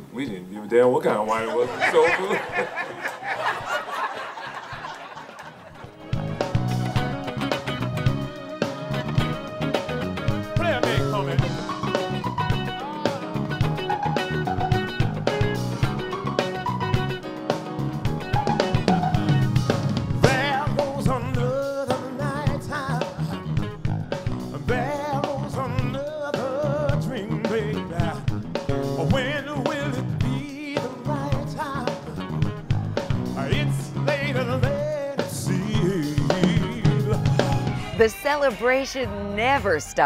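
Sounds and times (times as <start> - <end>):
drums and guitar: 3.4 - 40.0
person singing: 10.3 - 16.7, 20.2 - 23.5, 24.6 - 28.3, 28.9 - 32.3, 33.4 - 38.1.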